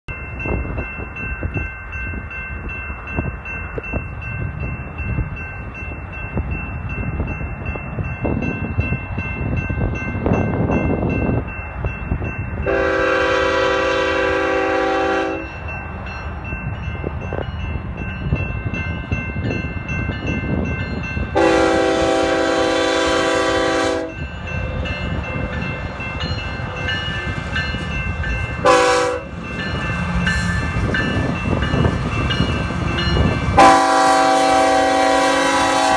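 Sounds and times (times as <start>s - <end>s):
wind on microphone: 0.1s - 35.9s
locomotive air horn blasts: 12.7s - 15.5s, 21.4s - 24.2s, 28.6s - 29.3s, 33.6s - 35.9s.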